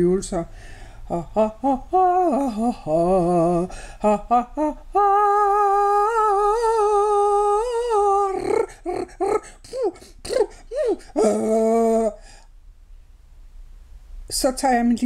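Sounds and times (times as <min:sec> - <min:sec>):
person singing vocal warm-ups: 0:00.0 - 0:12.5.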